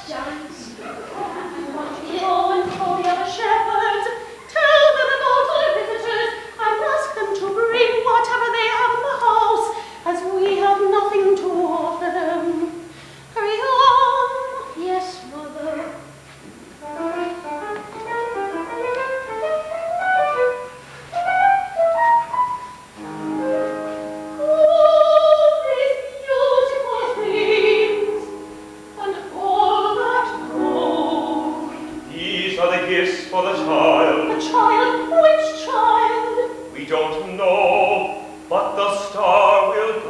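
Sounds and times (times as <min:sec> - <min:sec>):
held instrumental chords: 0:16.8 - 0:40.0
operatic solo voice singing: 0:29.0 - 0:40.0.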